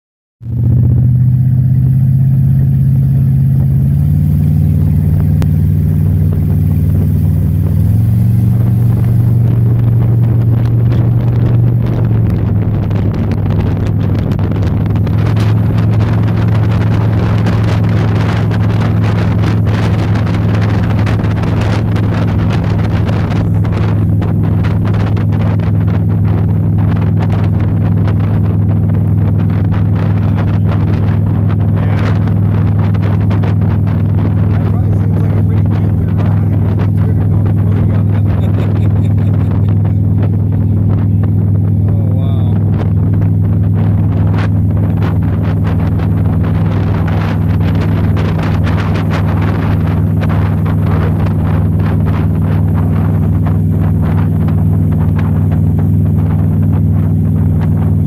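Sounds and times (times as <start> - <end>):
motorboat engine drone: 0.4 - 58.0
wind noise: 0.4 - 58.0
rushing water: 0.5 - 38.9.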